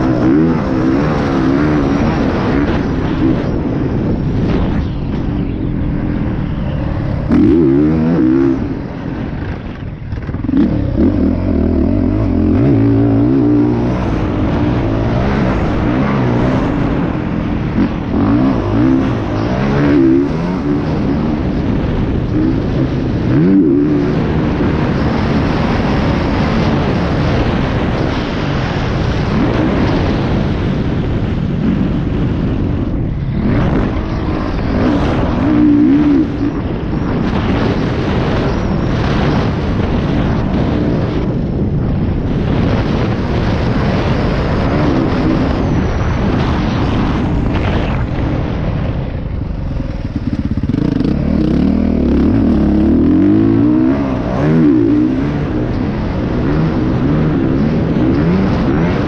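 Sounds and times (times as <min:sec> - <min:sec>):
dirt bike engine revving: 0:00.0 - 0:05.2, 0:06.0 - 0:30.6, 0:31.6 - 0:39.4, 0:49.6 - 0:59.0
rushing noise: 0:00.0 - 0:59.0.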